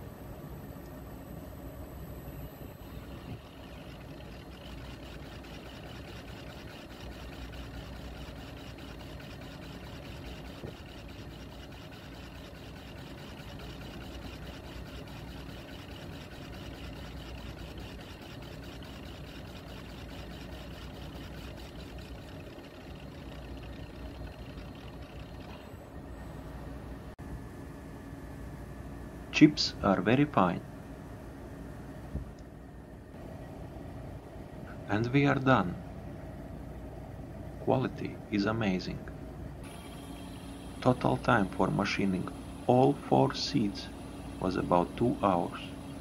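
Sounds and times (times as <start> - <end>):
valve seat machining machine whirring: 2.3 - 26.6, 39.6 - 46.0.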